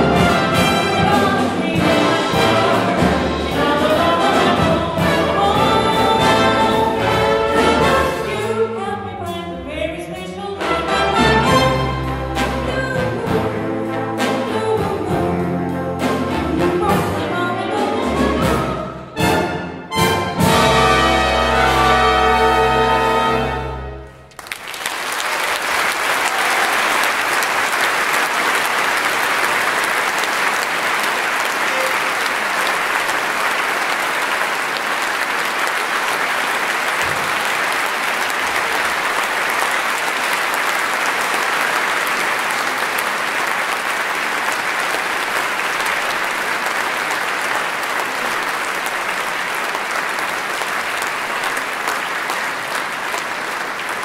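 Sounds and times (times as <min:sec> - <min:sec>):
audience applauding: 0:20.5 - 0:54.0.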